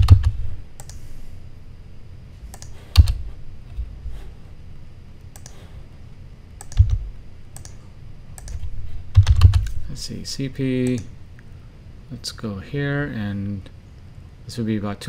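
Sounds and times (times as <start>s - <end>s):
keystrokes: 0.0s - 1.0s, 2.5s - 3.2s, 5.3s - 5.6s, 6.6s - 7.8s, 8.4s - 9.8s, 10.8s - 11.1s
mouse clicks: 0.8s - 1.0s, 2.5s - 3.2s, 5.2s - 5.6s, 6.6s - 7.0s, 7.6s - 7.8s.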